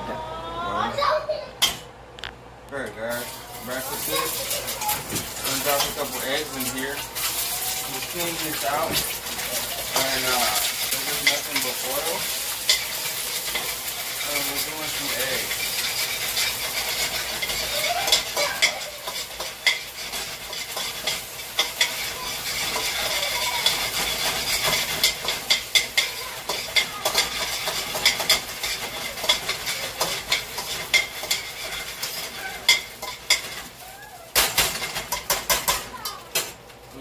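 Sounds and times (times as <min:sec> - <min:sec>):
eggs sizzling in oil: 0:03.0 - 0:37.0
utensil scraping pan: 0:03.2 - 0:35.8
utensil clattering: 0:03.2 - 0:36.7.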